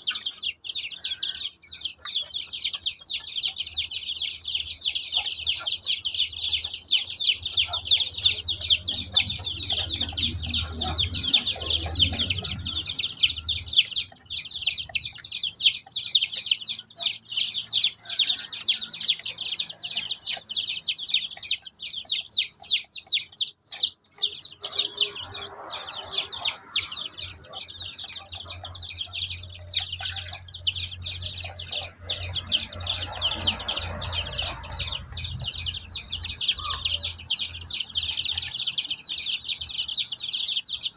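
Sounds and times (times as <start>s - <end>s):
chicks peeping: 0.0s - 40.9s.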